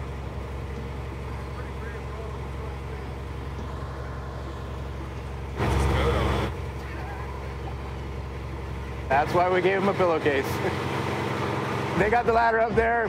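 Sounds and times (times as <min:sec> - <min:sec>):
truck engine running: 0:00.0 - 0:13.0
loud noisy burst: 0:05.5 - 0:07.1.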